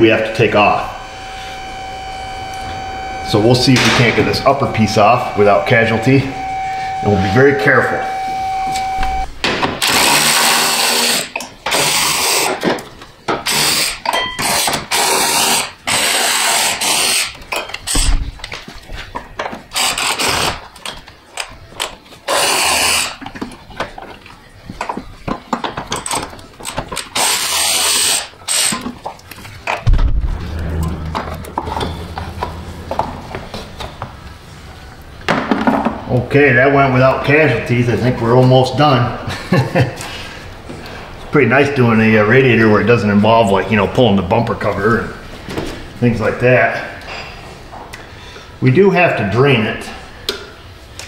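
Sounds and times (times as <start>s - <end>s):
electric ratchet running: 9.8s - 12.5s.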